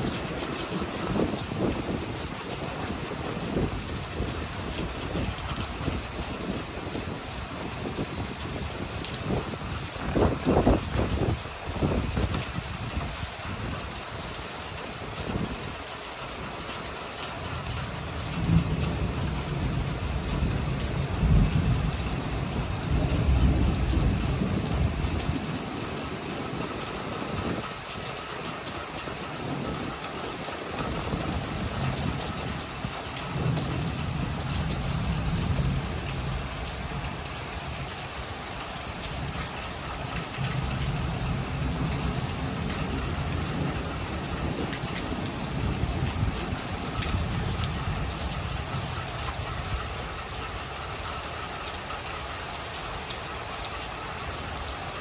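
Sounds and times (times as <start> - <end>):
rain falling steadily: 0.0 - 55.0
thunder rumbling: 17.8 - 27.8.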